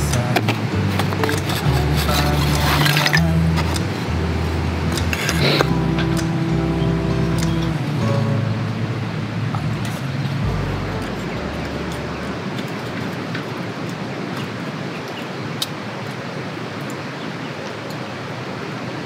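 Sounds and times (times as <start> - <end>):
background music: 0.0 - 13.2
rushing outdoor background noise: 0.0 - 19.0.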